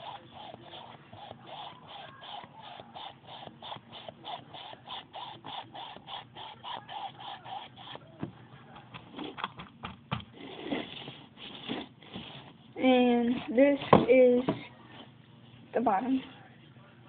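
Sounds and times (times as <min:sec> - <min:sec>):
sponge patting paint on canvas: 0:00.0 - 0:14.6.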